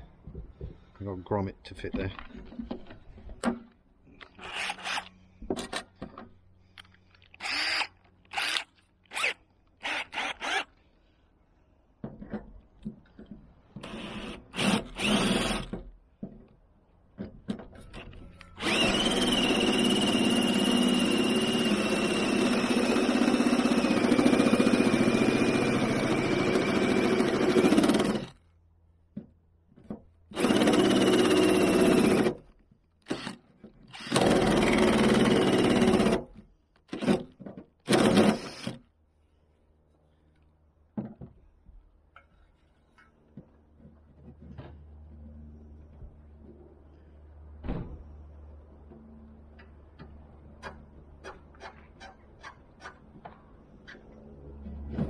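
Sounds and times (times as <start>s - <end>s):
cordless drill whining: 4.4s - 5.2s, 7.4s - 10.8s, 13.8s - 15.8s, 18.4s - 28.4s, 30.4s - 32.4s, 33.1s - 36.3s, 37.9s - 38.8s.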